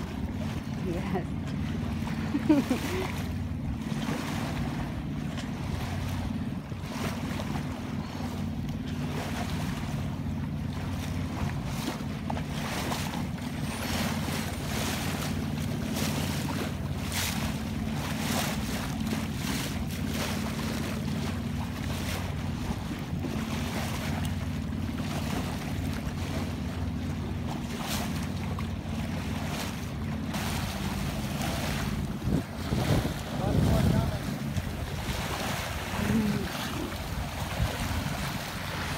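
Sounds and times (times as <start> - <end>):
boat engine hum: 0.0 - 38.9
water splashing along hull: 0.0 - 38.9
wind buffeting microphone: 30.7 - 38.9.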